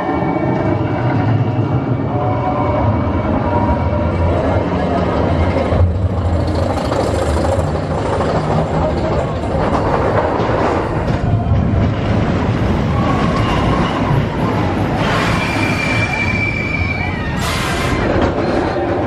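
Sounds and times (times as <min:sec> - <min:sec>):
roller coaster wheels rumbling: 0:00.0 - 0:19.0
high wheel squeal: 0:12.9 - 0:18.8.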